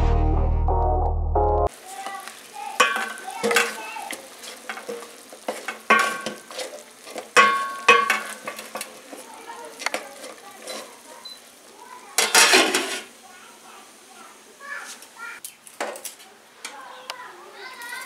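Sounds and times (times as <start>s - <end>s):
sizzling hiss: 1.7s - 18.0s
wooden spoon knocking metal pot: 2.8s - 3.8s, 4.6s - 9.2s.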